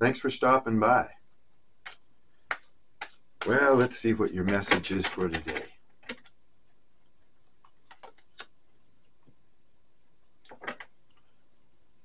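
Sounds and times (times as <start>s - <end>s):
cards clicking: 7.6s - 8.6s.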